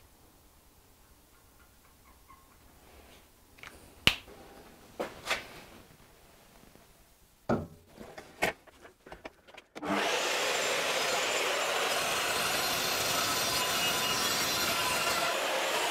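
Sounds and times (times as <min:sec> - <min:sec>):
power tool grinding steel: 0:09.8 - 0:15.9.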